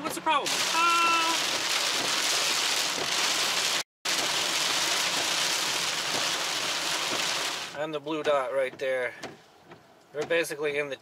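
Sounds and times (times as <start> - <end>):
heavy rain on car roof: 0.5 - 7.8.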